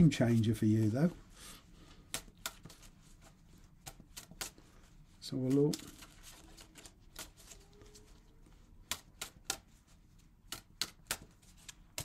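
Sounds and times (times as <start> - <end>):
cards snapping while shuffled: 8.8 - 9.7, 10.4 - 12.0.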